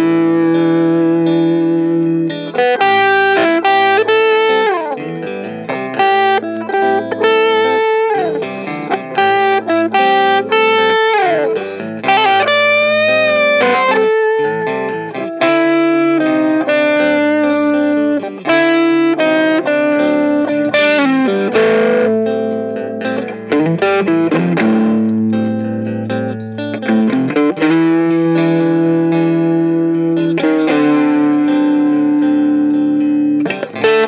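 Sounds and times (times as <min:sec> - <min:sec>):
electric guitar lead line: 0:00.0 - 0:34.0.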